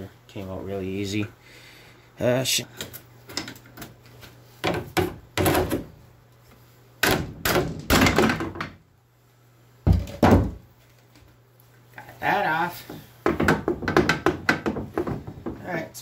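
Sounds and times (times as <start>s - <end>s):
metal parts thunking and knocking: 7.0s - 8.8s.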